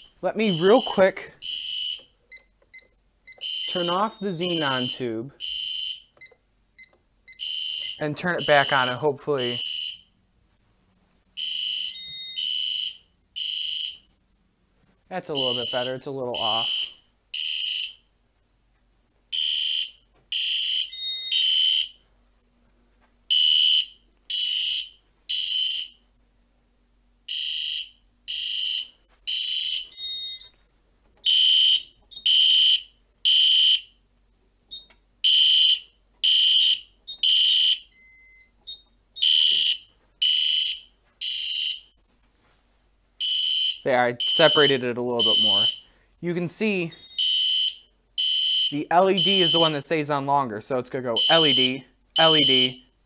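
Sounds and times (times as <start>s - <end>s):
high-pitched electronic alarm horn: 0.0s - 2.1s, 3.3s - 6.1s, 7.4s - 10.1s, 15.3s - 18.0s, 43.2s - 45.9s, 46.9s - 49.8s, 51.1s - 52.9s.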